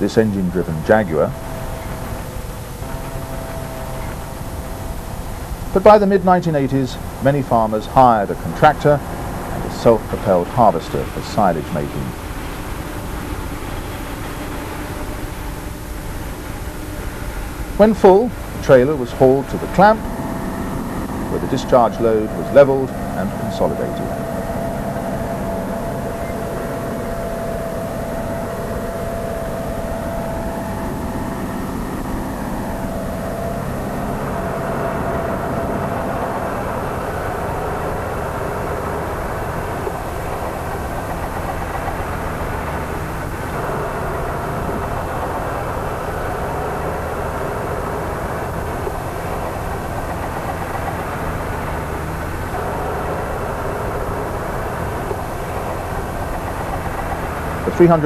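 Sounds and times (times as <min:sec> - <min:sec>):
thin steady whine: 0:00.0 - 0:58.0
tractor diesel engine running: 0:00.0 - 0:58.0.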